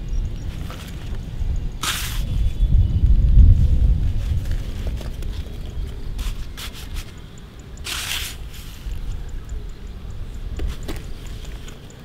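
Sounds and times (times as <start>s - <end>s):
plastic toy shovel scraping soil: 1.8s - 2.6s, 6.2s - 7.2s, 7.8s - 9.1s.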